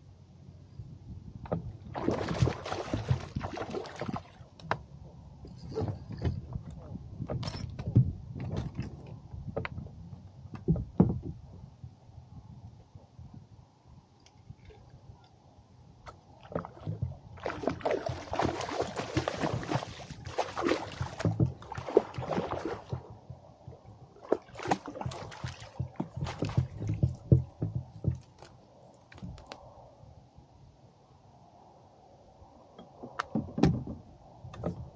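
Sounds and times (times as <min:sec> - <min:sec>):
water splashing and sloshing: 0:01.4 - 0:10.0, 0:16.0 - 0:29.6.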